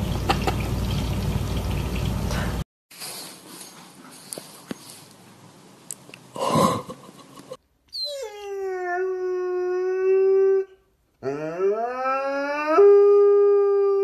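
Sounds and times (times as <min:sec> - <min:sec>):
dog howling: 0:08.0 - 0:14.0.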